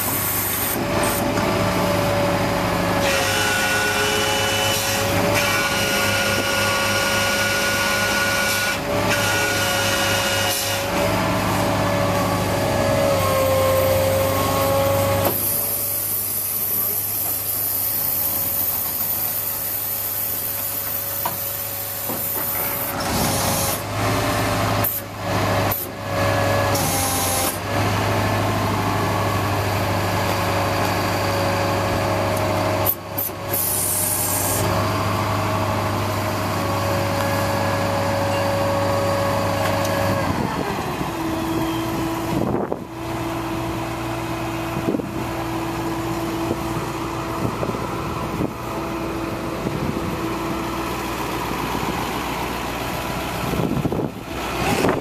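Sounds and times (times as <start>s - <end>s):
truck engine running: 0.0s - 8.2s, 10.9s - 26.8s, 27.4s - 55.0s
hydraulic hissing and clunking: 14.3s - 24.1s, 32.4s - 40.9s.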